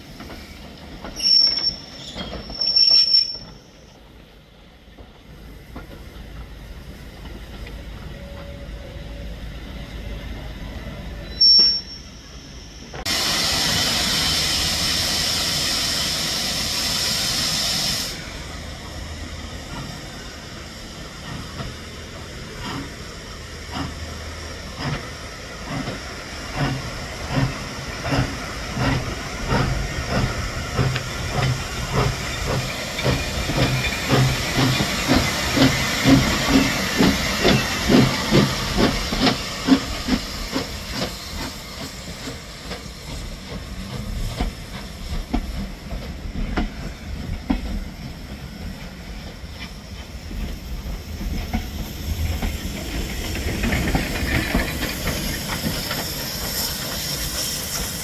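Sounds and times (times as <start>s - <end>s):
steam locomotive exhaust beats: 0.0s - 58.0s
steam hissing: 5.3s - 58.0s.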